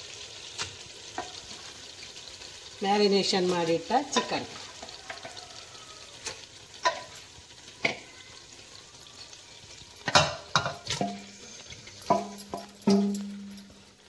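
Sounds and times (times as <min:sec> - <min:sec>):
masala sizzling: 0:00.0 - 0:14.0
metal clinks: 0:11.0 - 0:14.0.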